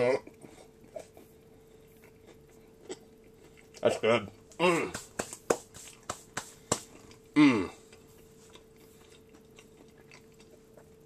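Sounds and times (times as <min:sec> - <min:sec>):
person chewing crunchy food: 0:00.1 - 0:11.0
person humming: 0:07.4 - 0:07.8.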